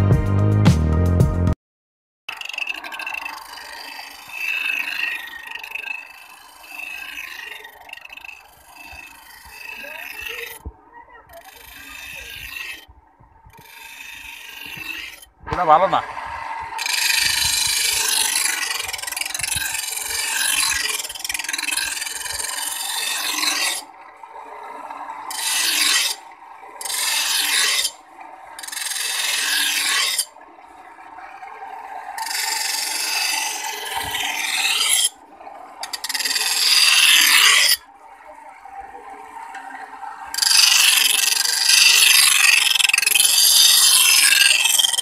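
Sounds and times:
steel blade grinding on wheel: 2.3 - 15.9, 16.8 - 37.9, 39.5 - 45.0
grinding wheel whirring: 2.3 - 45.0.

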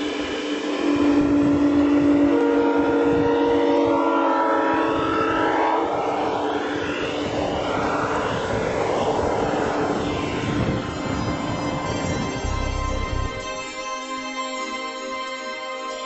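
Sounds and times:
wheels rumbling on rail: 0.0 - 13.7
model locomotive horn chord: 0.8 - 5.8, 10.4 - 16.0.

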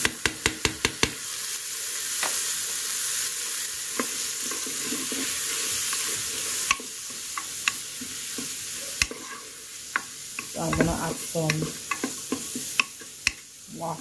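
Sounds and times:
wooden spoon knocking on pot: 0.0 - 1.2, 10.0 - 13.4
food sizzling in a pot: 0.0 - 14.0.

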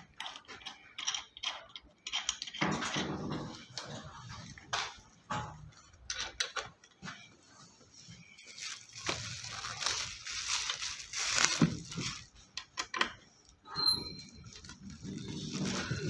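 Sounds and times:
plastic wrap crinkling: 8.2 - 12.8, 14.4 - 16.0.

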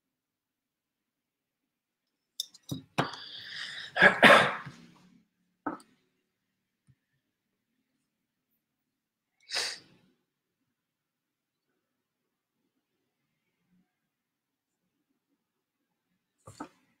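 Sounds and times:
man coughing: 3.9 - 4.8.

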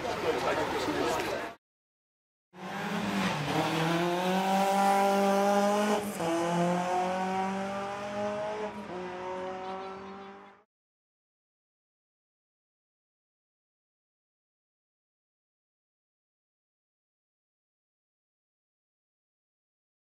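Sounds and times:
car engine revving hard: 2.6 - 10.6.

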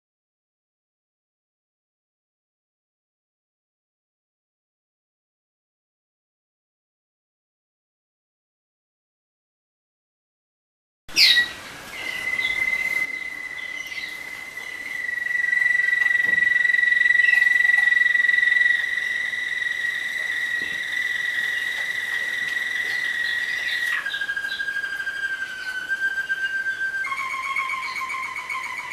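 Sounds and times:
canaries singing a high note: 11.1 - 28.9.

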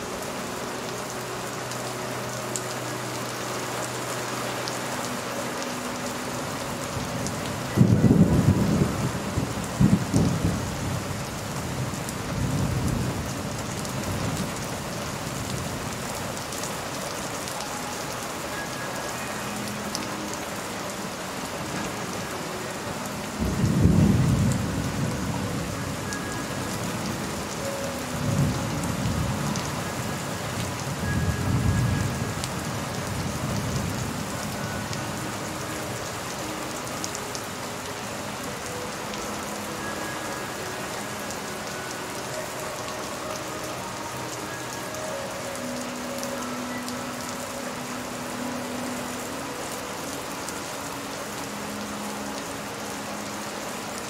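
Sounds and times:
steady rain falling: 0.0 - 54.0
thunder rumbling: 7.8 - 11.0.

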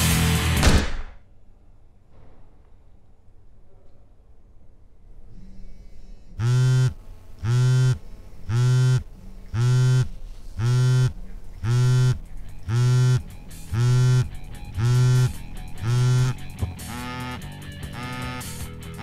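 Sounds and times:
pulsing electric buzz: 6.4 - 19.0.

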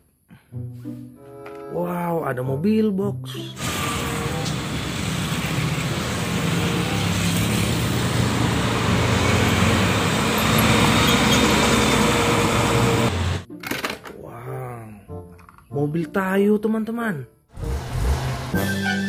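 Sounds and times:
truck engine passing: 3.6 - 13.4, 17.5 - 19.0
motorcycles passing: 3.9 - 13.4.

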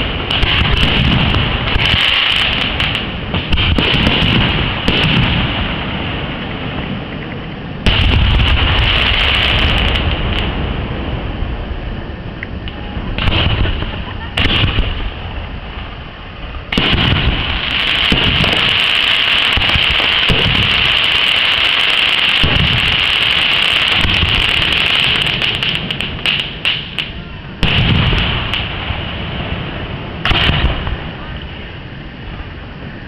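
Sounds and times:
firework booms: 0.0 - 32.5
firework crackling: 0.0 - 33.0.

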